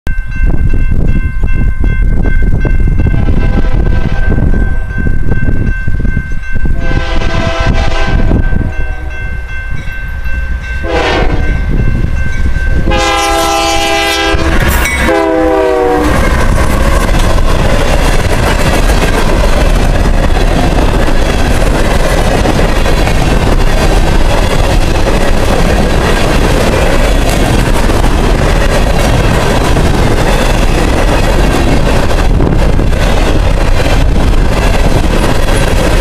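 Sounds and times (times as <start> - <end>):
train wheels rumbling on rail: 0.1 - 36.0
locomotive air horn: 6.8 - 9.2, 10.8 - 11.6, 12.8 - 16.3.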